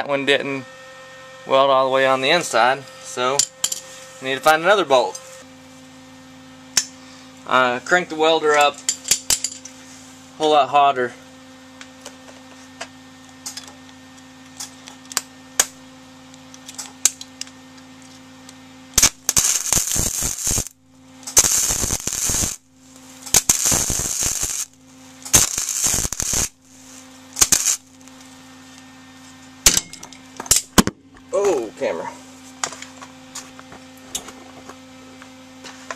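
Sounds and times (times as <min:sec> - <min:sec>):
welder arc crackling: 0:18.5 - 0:28.8.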